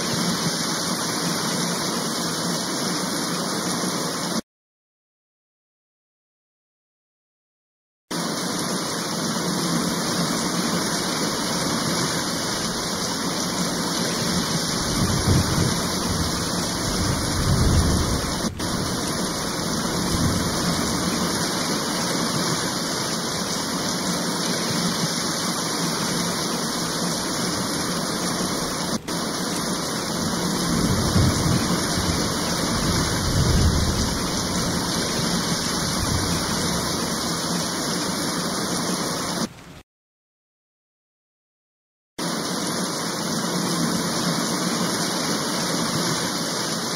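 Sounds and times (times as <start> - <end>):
heavy rain hissing: 0.0 - 4.4, 8.1 - 39.6, 42.2 - 46.9
thunder rumbling: 12.3 - 22.5, 29.6 - 37.4.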